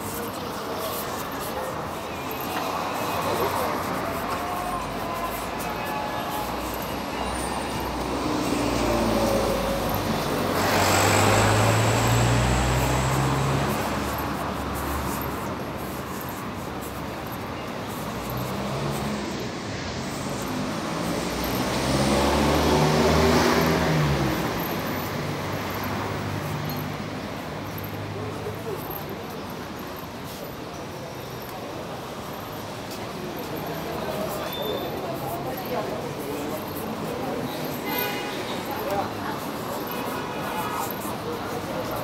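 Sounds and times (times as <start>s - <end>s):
steady street hum: 0.0s - 42.0s
cars driving past: 1.9s - 29.3s.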